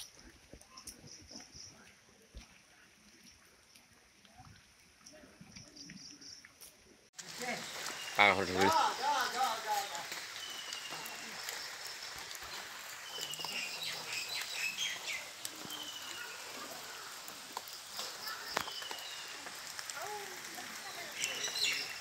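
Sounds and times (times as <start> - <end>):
steady outdoor hiss: 0.0 - 22.0
birds chirping: 7.2 - 22.0.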